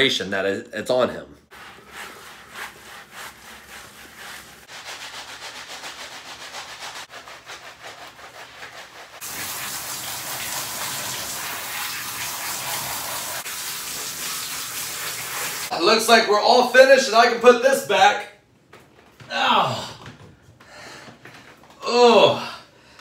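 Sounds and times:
hand scrubbing wet fur: 0:01.5 - 0:15.7
shower head spraying: 0:09.2 - 0:15.7.

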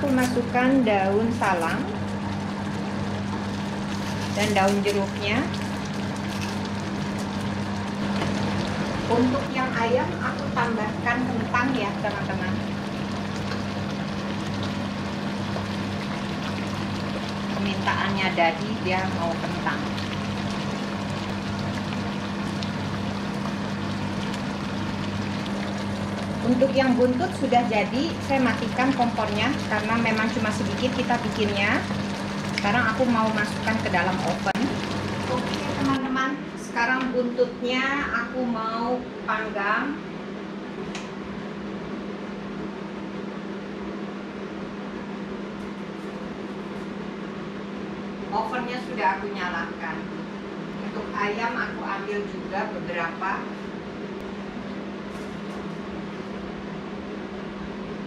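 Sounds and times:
kitchen appliance humming: 0:00.0 - 0:38.1.

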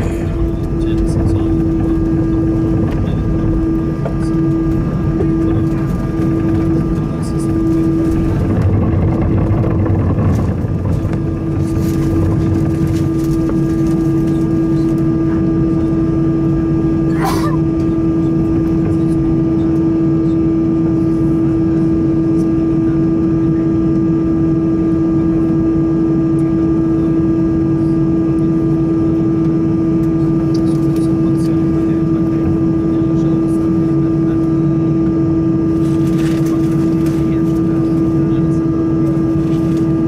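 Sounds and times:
airplane cabin hum: 0:00.0 - 0:40.0.

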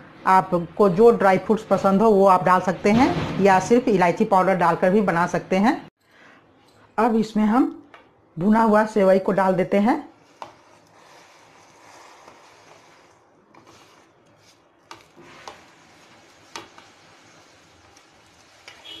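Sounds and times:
fingers rustling on plastic plate: 0:10.1 - 0:19.0.

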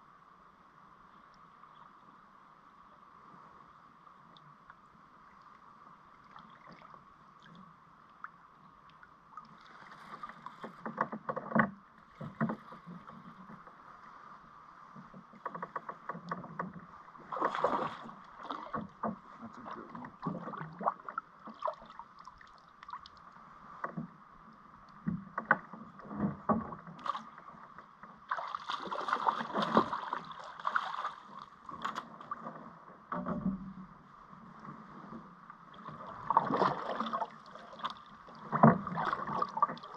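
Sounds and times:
paddle knocking against kayak hull: 0:10.1 - 0:13.6, 0:36.3 - 0:39.9
water splashing and dripping: 0:28.3 - 0:32.0.

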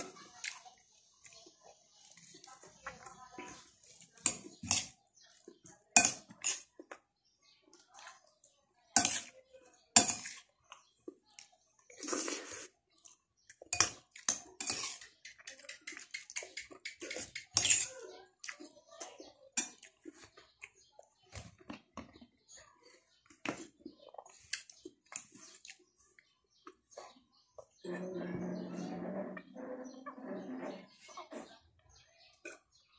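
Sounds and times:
spoon scraping ceramic plate: 0:13.8 - 0:18.1, 0:27.9 - 0:31.5.

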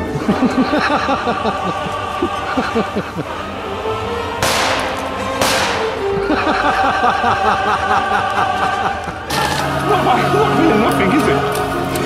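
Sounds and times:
background music: 0:00.0 - 0:12.0
sharp cracks with hiss: 0:04.4 - 0:06.0.

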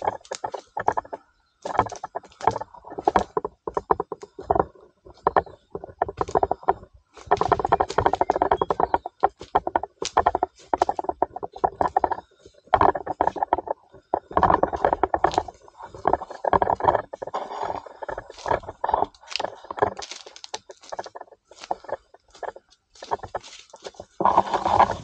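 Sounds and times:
undergrowth rustling: 0:00.0 - 0:25.0
footsteps crunching on dry leaves: 0:17.2 - 0:25.0.

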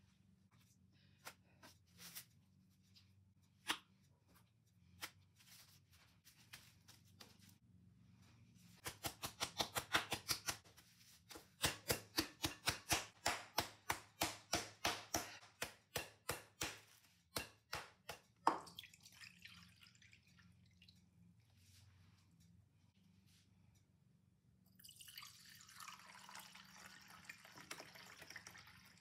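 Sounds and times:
meat mallet pounding on board: 0:11.6 - 0:16.8.

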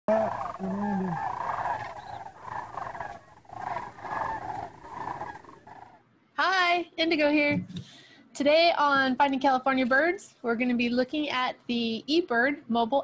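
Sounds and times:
flock of birds calling: 0:00.1 - 0:06.0.

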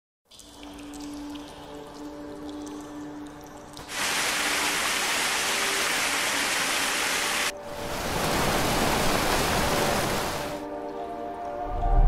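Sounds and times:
stream rushing over boulders: 0:03.9 - 0:10.6.

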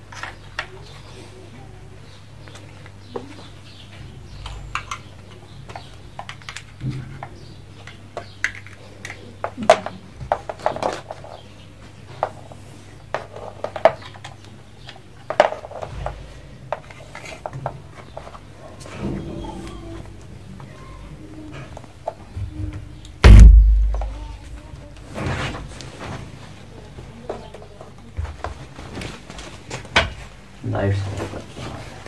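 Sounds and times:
plastic clicks and clatter: 0:04.4 - 0:11.4
steady low hum: 0:23.2 - 0:25.0.

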